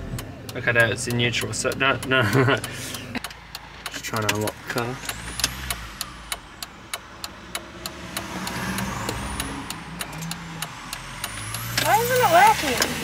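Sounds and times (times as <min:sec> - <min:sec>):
sharp clicks: 0:00.1 - 0:13.0.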